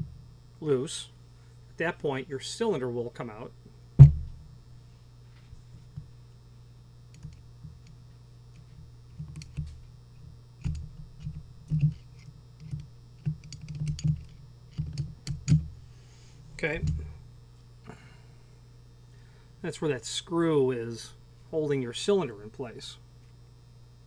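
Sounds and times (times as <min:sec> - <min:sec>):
thump: 0:04.0 - 0:04.4.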